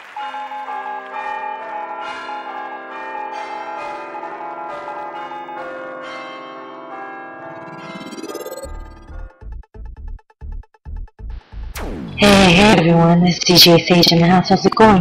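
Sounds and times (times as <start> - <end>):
bells ringing: 0.0 - 9.3
rising electronic sweep: 7.5 - 9.4, 11.5 - 12.3.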